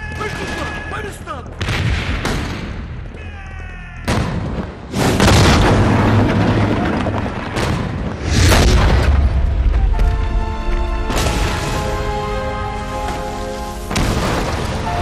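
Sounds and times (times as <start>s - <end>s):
heavy explosions with rumbling tails: 1.6s - 3.0s, 4.1s - 13.1s, 13.8s - 15.0s.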